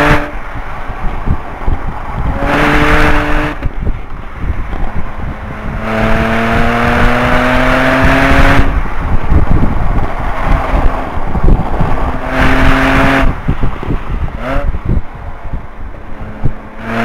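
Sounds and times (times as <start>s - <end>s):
car engine at full throttle: 0.0s - 17.0s
road and wind noise: 0.0s - 17.0s.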